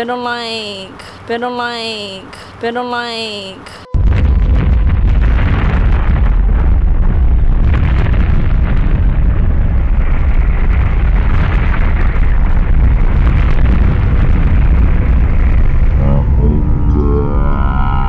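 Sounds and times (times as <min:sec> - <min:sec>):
mud and rocks rumbling: 0:04.0 - 0:18.0.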